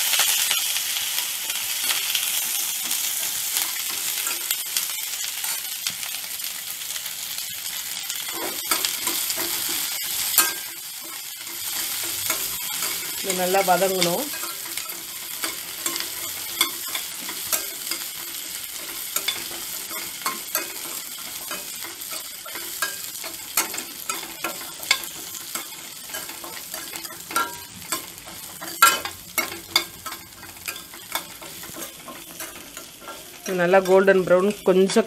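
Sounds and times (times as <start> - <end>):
vegetables sizzling in hot oil: 0.0 - 35.0
ladle scraping and clinking pan: 8.3 - 34.0.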